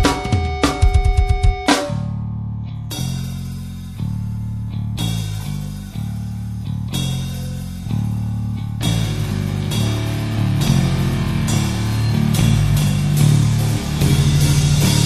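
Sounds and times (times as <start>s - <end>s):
drum hits: 0.0s - 2.1s
held guitar and bass chords: 0.0s - 15.0s.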